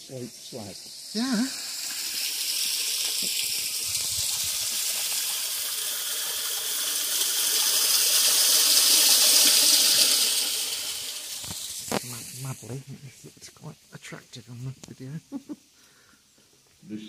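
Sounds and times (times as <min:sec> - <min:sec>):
water splashing down cascade: 0:01.1 - 0:12.5.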